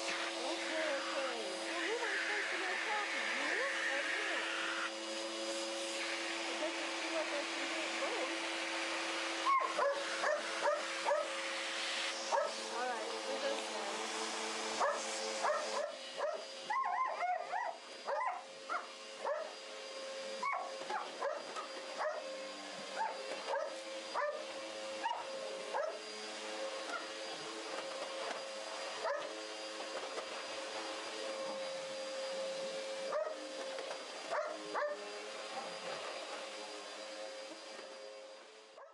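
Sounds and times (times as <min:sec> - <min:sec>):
vacuum cleaner humming: 0:00.0 - 0:38.9
dogs yipping and whining: 0:09.4 - 0:11.3, 0:12.3 - 0:12.6, 0:14.8 - 0:19.6, 0:20.4 - 0:22.3, 0:22.9 - 0:24.4, 0:25.0 - 0:26.0, 0:26.8 - 0:27.2, 0:28.9 - 0:29.4, 0:33.1 - 0:33.4, 0:34.3 - 0:35.7.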